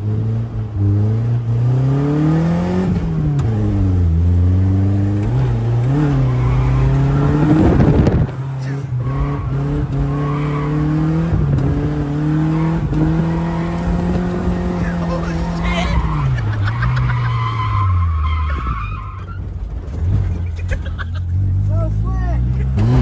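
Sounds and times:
car engine revving high: 0.0s - 18.2s, 22.4s - 23.0s
tire squeal: 5.9s - 8.1s, 8.7s - 11.1s, 15.1s - 20.7s.

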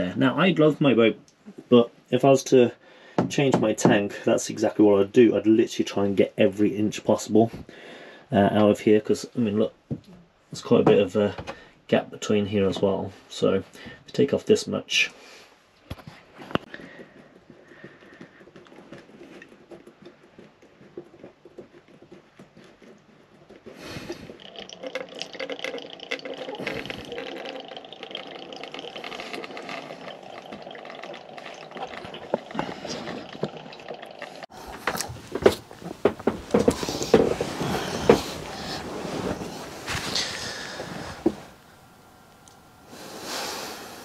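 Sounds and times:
fuel trickling into a bowl: 23.8s - 34.6s.

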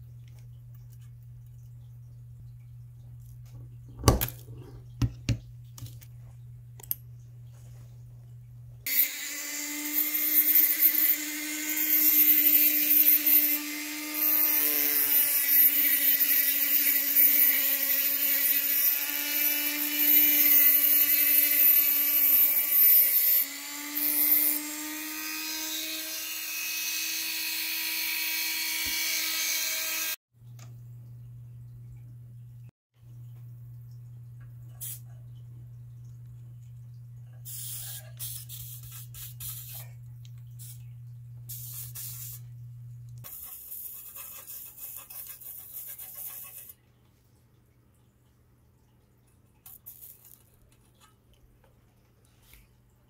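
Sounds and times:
rotary tool cutting sheet metal: 8.9s - 30.2s.

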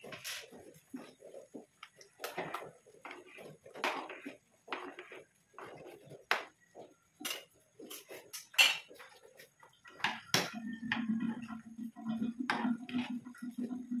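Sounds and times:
ladle clinking and scraping pot: 7.2s - 9.1s.

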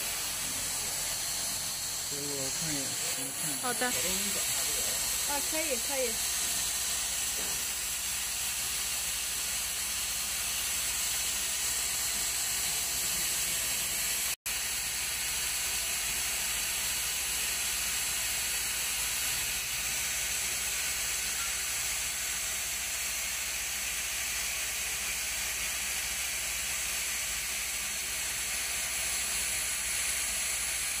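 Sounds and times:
grinding wheel and coolant hiss: 0.0s - 31.0s.

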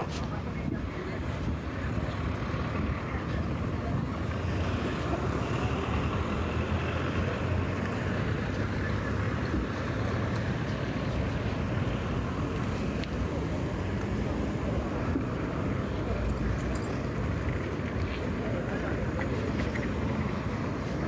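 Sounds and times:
cars passing by: 0.0s - 21.0s.

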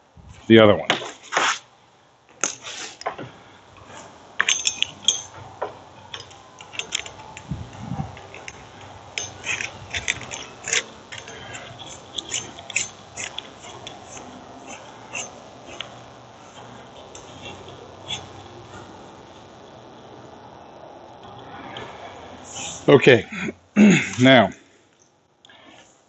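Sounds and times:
hose fitting clicking and scraping: 6.1s - 7.5s, 8.1s - 15.9s.

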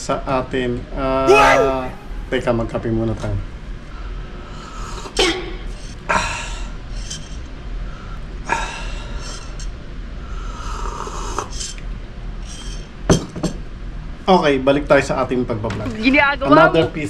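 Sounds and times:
man slurping coffee: 10.6s - 11.8s.

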